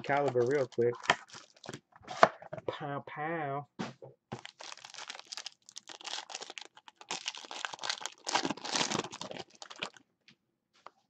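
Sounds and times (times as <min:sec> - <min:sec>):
foil wrapper tearing and crinkling: 0:00.1 - 0:01.8, 0:04.4 - 0:10.0.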